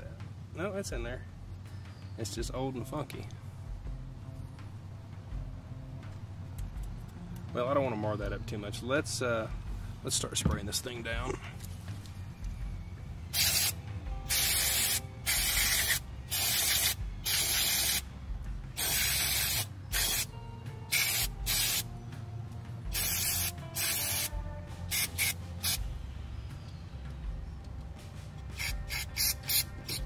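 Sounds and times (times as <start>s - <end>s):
aerosol spray hissing: 13.4s - 18.0s, 18.8s - 20.3s, 20.9s - 21.8s, 22.9s - 25.8s, 28.6s - 30.0s.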